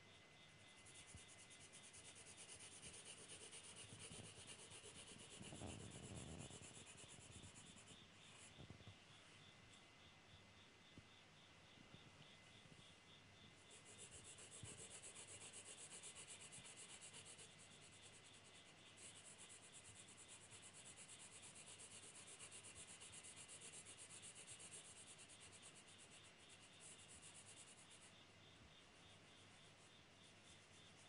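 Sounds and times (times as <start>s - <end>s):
pencil scratching on paper: 0.7s - 8.6s, 13.7s - 28.1s.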